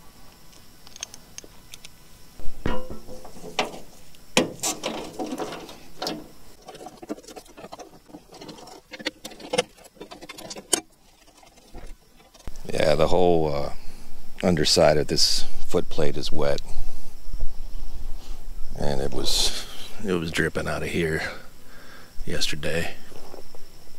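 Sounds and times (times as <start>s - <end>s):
metal knocks: 2.6s - 12.4s.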